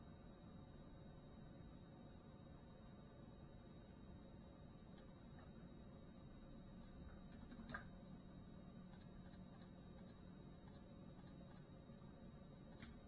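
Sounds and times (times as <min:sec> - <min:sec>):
faint low hum: 0:00.0 - 0:13.0
faint clicks: 0:12.7 - 0:13.0.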